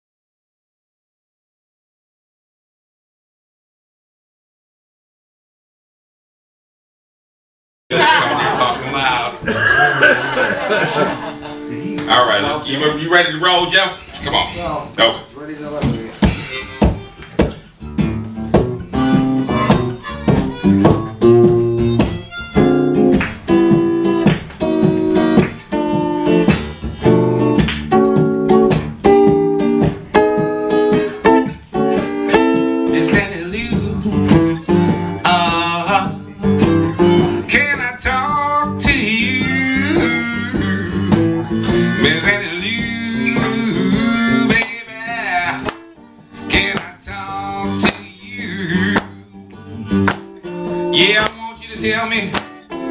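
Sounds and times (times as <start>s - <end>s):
acoustic guitar strumming: 7.9s - 52.9s
harmonica playing: 16.3s - 17.4s, 18.9s - 24.1s, 34.7s - 35.5s, 36.3s - 37.4s, 40.0s - 44.4s.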